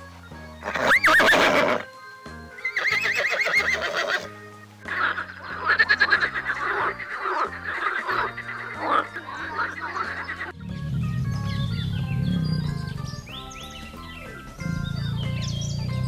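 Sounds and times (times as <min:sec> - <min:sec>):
background music: 0:00.0 - 0:16.0
horse neighing: 0:00.6 - 0:01.9, 0:02.6 - 0:04.3, 0:04.9 - 0:10.5
frog calling: 0:04.9 - 0:10.7.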